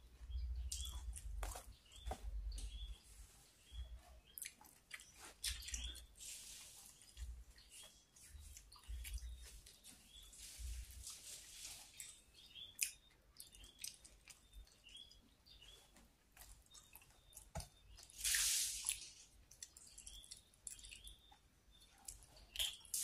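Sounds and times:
wet chewing: 3.8s - 6.1s, 6.9s - 10.2s, 11.0s - 23.0s
short loud hiss: 18.2s - 18.8s.

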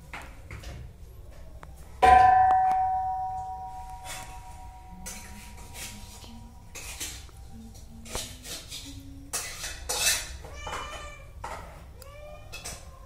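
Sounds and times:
metal food bowls clinking: 2.0s - 11.8s, 12.4s - 13.0s
cats meowing: 10.4s - 13.0s.

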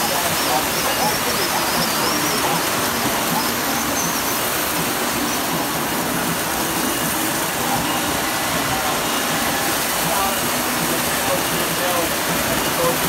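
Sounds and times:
model trains whirring on track: 0.0s - 13.0s.

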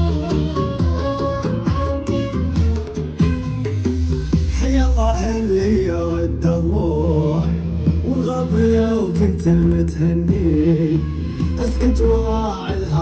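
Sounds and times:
low bass: 0.0s - 13.0s
man singing slow melody: 4.5s - 13.0s.

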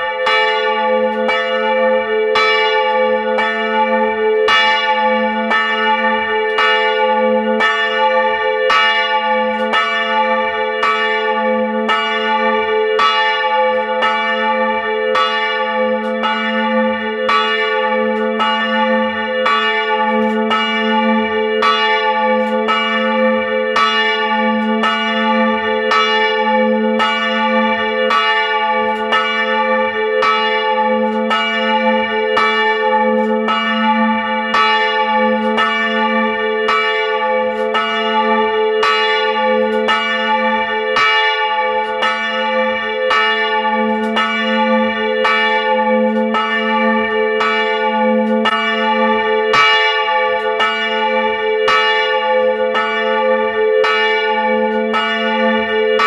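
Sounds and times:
church bells pealing: 0.0s - 56.0s.

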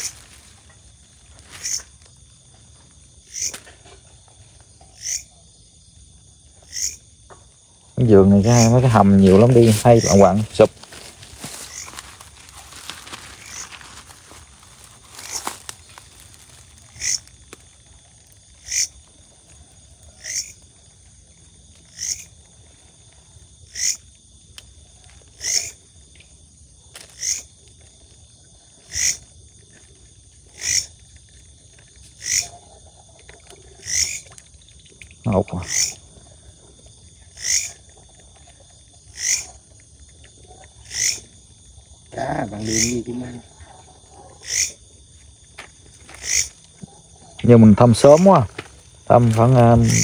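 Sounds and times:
high insect chirring: 0.0s - 50.0s
animal call repeating: 25.4s - 25.8s, 28.9s - 29.2s, 30.6s - 30.9s, 32.2s - 32.5s, 33.8s - 34.2s, 35.6s - 36.0s, 37.4s - 37.8s, 39.1s - 39.6s, 40.9s - 41.3s, 42.6s - 43.0s, 44.4s - 44.8s, 49.6s - 50.0s.

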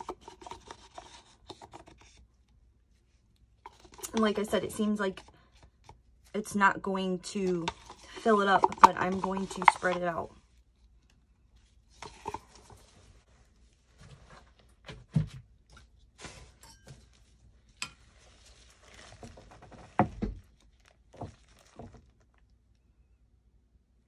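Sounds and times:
hands handling tools on plastic: 7.4s - 10.3s, 11.9s - 13.1s.

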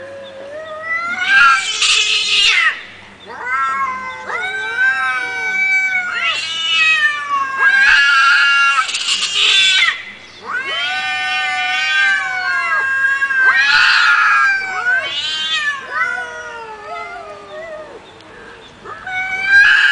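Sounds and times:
cat yowling: 0.0s - 18.0s, 18.8s - 19.9s.

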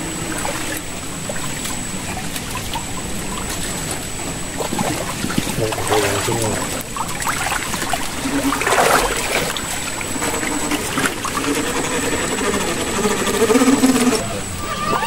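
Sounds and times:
faint humming tones: 0.0s - 15.0s
water flowing over rocks: 4.5s - 10.9s.

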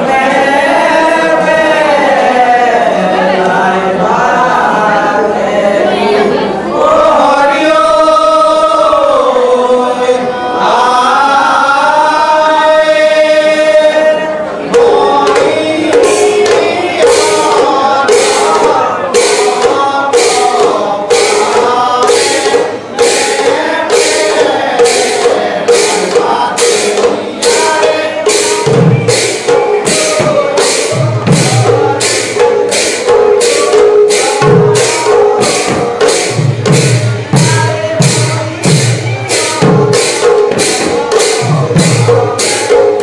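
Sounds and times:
men chanting in unison: 0.0s - 43.0s
hand drums: 12.2s - 43.0s
brass cymbals clashing: 14.7s - 43.0s.

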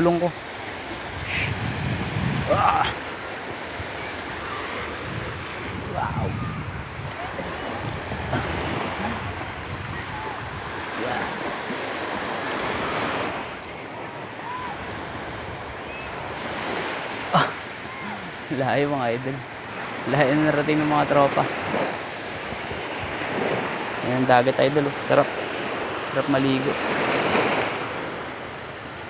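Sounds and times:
wind on microphone: 0.0s - 18.4s
waves washing on beach: 0.0s - 29.0s.

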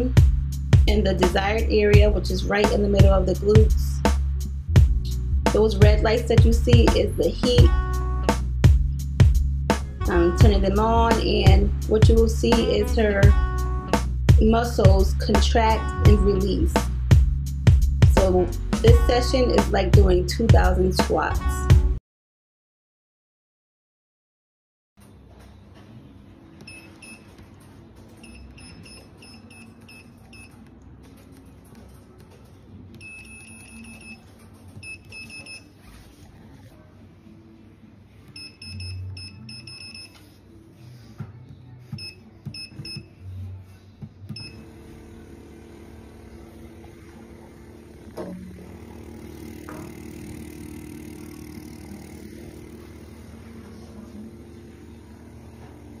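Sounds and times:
suction pump humming: 44.3s - 56.0s.

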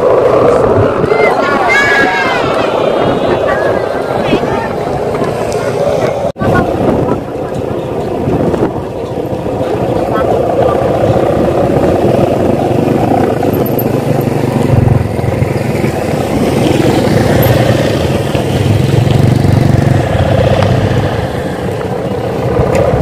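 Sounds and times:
kite hummers droning: 0.0s - 23.0s.

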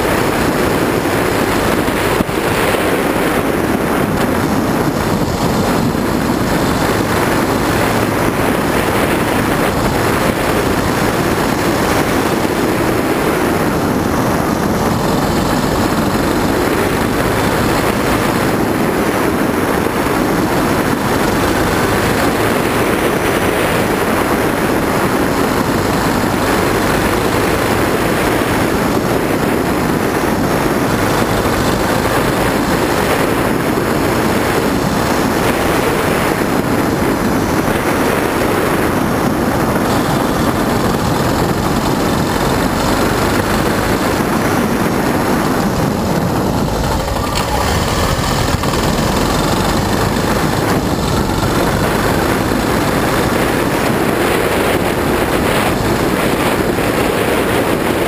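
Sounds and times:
motorcycle engine cruising: 0.0s - 58.0s
wind rushing: 0.0s - 58.0s
tyres on gravel: 39.0s - 54.0s.

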